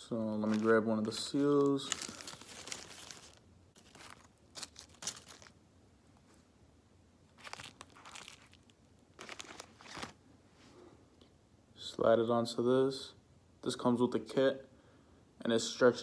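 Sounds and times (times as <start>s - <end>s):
plastic bag crinkling: 0.4s - 5.6s, 7.3s - 10.2s.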